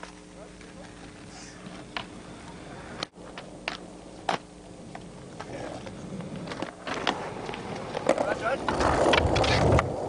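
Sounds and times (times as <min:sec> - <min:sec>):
low hum: 0:00.0 - 0:10.0
skateboard rolling on concrete: 0:00.0 - 0:10.0
skateboard clacks: 0:03.0 - 0:10.0.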